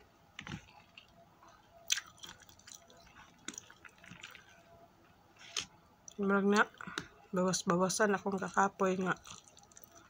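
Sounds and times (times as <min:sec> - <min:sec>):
wet chewing and mouth smacks: 0:01.8 - 0:04.6, 0:09.1 - 0:10.0.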